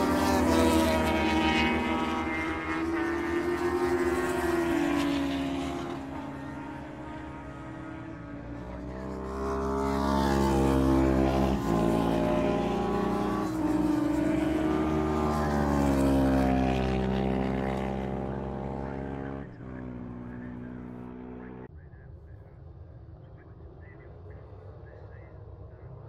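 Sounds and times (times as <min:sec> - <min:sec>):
motorcycle engine at full throttle: 0:00.0 - 0:21.7.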